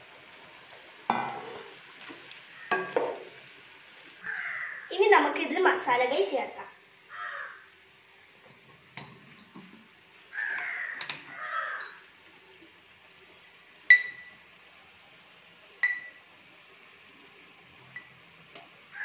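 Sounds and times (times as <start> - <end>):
crow cawing: 4.2 - 4.9, 7.1 - 7.7, 10.3 - 12.0
utensil clinking on metal pot: 13.9 - 14.4, 15.8 - 16.2.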